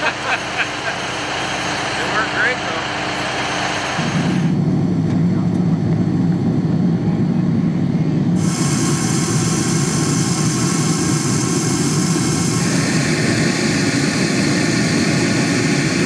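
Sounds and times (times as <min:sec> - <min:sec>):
heavy engine rumbling: 0:00.0 - 0:16.0
rushing hiss: 0:08.4 - 0:16.0.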